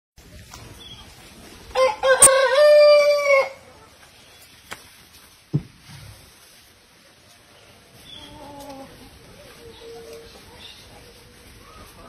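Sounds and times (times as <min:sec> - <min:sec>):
rooster crowing: 0:01.8 - 0:03.7.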